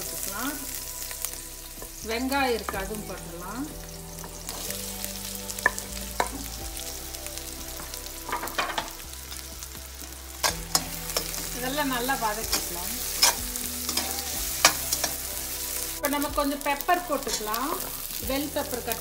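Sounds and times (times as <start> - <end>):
vegetables sizzling in hot oil: 0.0 - 19.0
metal spatula scraping a pan: 10.4 - 15.6.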